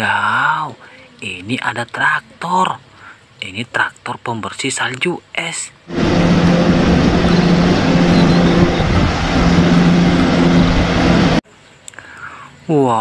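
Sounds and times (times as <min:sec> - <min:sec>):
diesel engine droning under load: 0:05.9 - 0:11.4
plow pushing through snow: 0:05.9 - 0:11.4.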